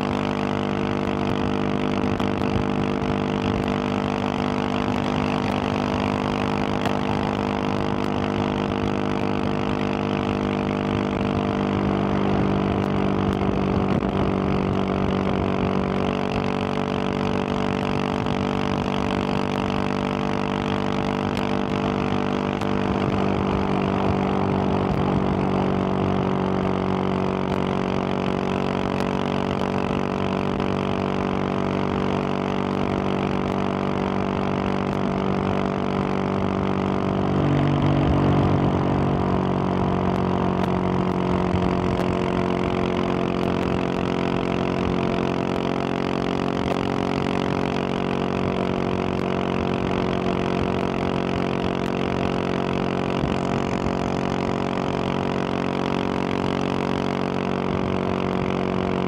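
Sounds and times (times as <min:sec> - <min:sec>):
motorcycle engine cruising: 0:00.0 - 0:59.0
wind rush: 0:34.6 - 0:42.7.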